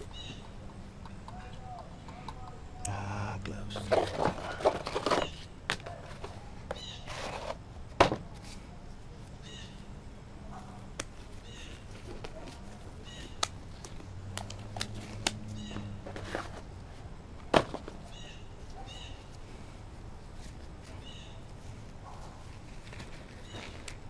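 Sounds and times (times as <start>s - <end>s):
glove box rustling: 3.6s - 6.4s
glove clicks: 10.9s - 15.9s.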